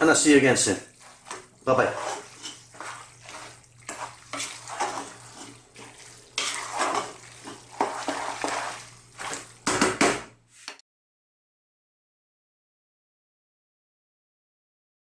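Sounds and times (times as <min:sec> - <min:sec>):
wooden spoon stirring pasta in pot: 0:00.1 - 0:10.8.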